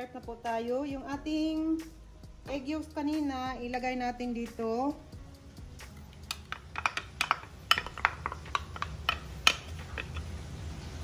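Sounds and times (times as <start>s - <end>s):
wooden spatula tapping and scraping: 6.2s - 10.4s.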